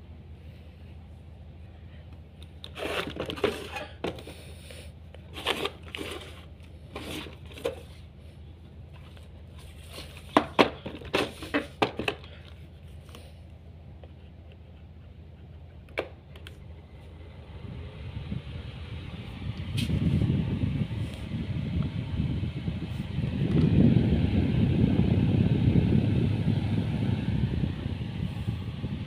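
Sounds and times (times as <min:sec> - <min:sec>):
steady low hum: 0:00.0 - 0:29.0
plastic fan knocks and clicks: 0:10.3 - 0:12.3, 0:15.9 - 0:16.5.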